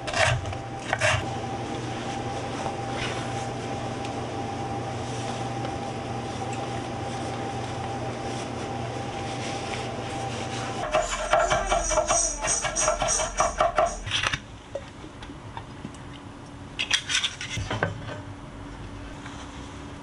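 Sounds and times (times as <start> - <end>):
steady hum: 0.0 - 15.7.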